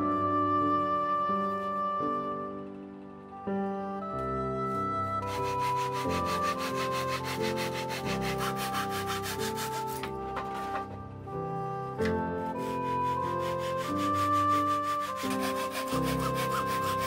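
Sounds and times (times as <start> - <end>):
background music with held notes: 0.0 - 17.0
handsaw cutting wood: 5.3 - 10.1, 12.5 - 17.0.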